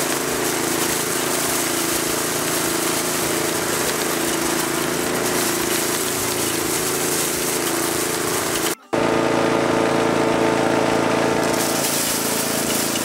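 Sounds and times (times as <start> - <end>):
seed pods rattling grind: 0.0 - 8.8, 11.4 - 13.0
feed grinder motor hum: 0.0 - 13.0.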